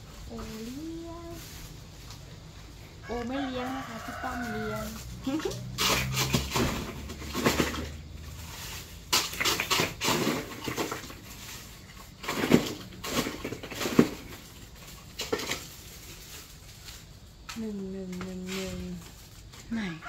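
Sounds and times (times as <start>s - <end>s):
ice clattering in plastic chest: 5.2s - 17.2s.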